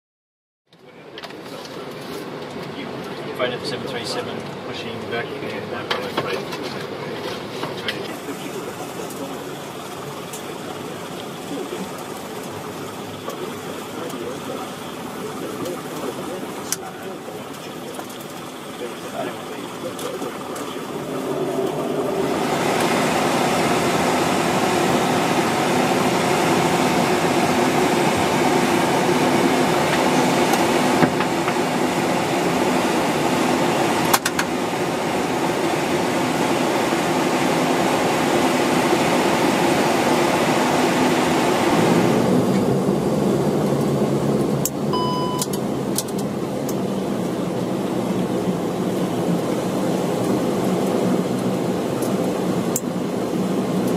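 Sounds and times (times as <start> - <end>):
turboprop engines droning: 0.7 - 53.9
short electronic beeps: 44.9 - 45.5.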